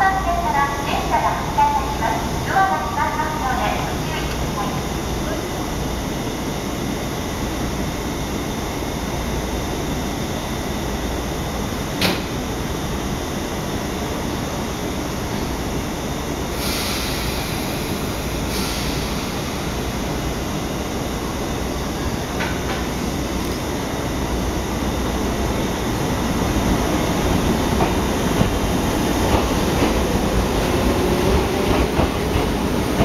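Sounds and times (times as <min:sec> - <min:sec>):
electric train humming: 0:00.0 - 0:33.0
hiss of air: 0:16.5 - 0:19.8
train pulling away: 0:16.5 - 0:20.8, 0:24.8 - 0:33.0.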